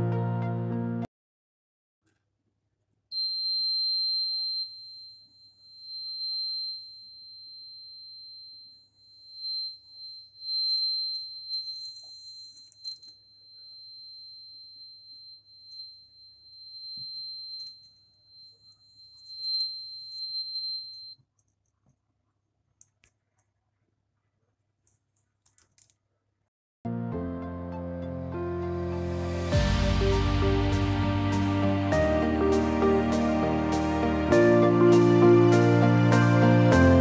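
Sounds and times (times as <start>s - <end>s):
high-pitched buzzer tone: 3.2s - 21.2s.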